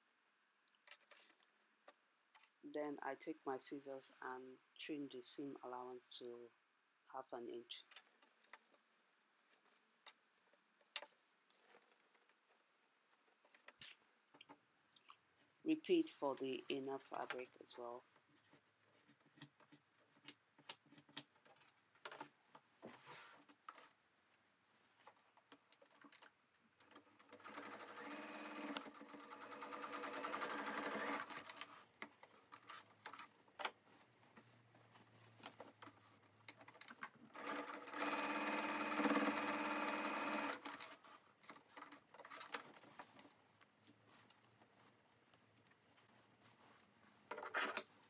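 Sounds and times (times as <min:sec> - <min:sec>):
sewing machine stitching: 0:26.8 - 0:31.8, 0:36.6 - 0:41.2
fabric handling: 0:31.4 - 0:36.8, 0:41.0 - 0:48.0.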